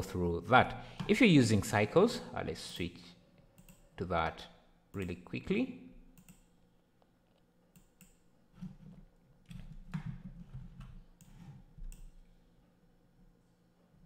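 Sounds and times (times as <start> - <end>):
computer mouse clicks: 3.6 - 3.8, 6.2 - 6.5, 7.3 - 8.2.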